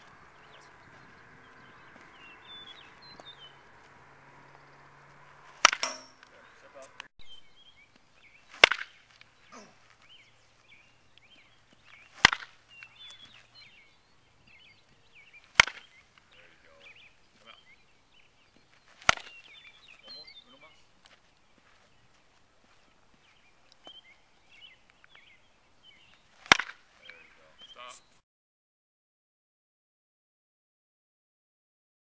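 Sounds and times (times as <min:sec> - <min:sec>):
bat hitting baseball cracks: 0:01.6 - 0:07.1, 0:08.5 - 0:09.8, 0:12.0 - 0:13.4, 0:15.4 - 0:16.2, 0:18.9 - 0:19.5, 0:26.4 - 0:26.8.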